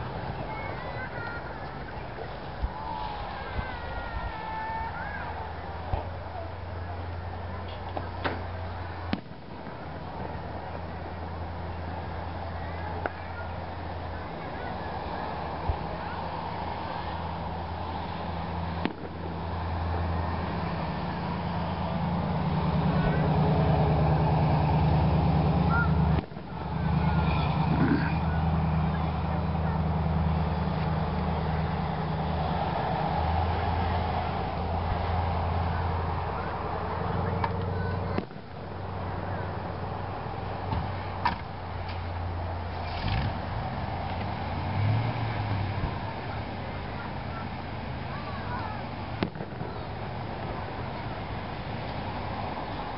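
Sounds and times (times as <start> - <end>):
faint firework crackle: 0.0 - 52.9
steady low rumble: 0.0 - 52.9
sharp pop: 9.1 - 9.4, 18.8 - 19.2, 49.2 - 49.8.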